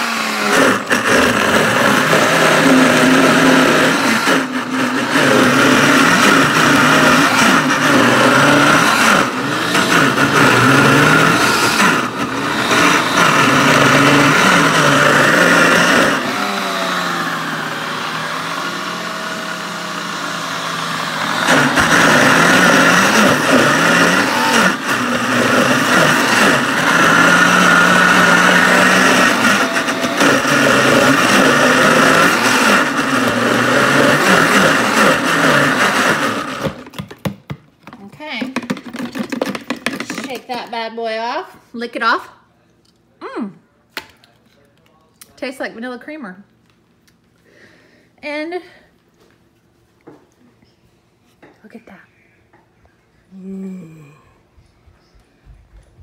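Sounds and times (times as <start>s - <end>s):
blender motor running: 0.0s - 37.1s, 38.6s - 40.4s.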